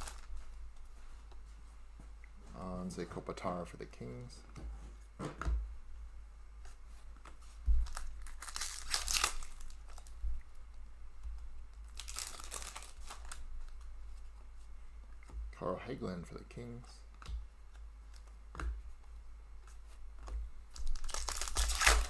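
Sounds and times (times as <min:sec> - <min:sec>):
wrapper tearing and crinkling: 0:00.0 - 0:00.3, 0:07.9 - 0:10.1, 0:11.8 - 0:13.4, 0:20.7 - 0:22.0.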